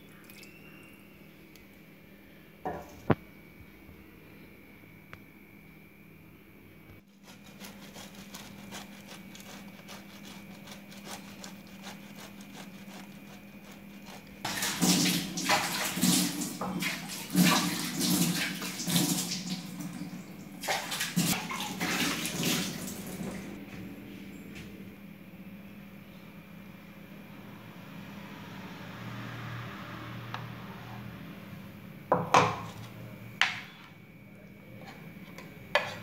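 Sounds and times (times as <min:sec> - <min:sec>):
faint steady hum: 0:00.0 - 0:14.5, 0:22.5 - 0:29.4, 0:30.1 - 0:36.0.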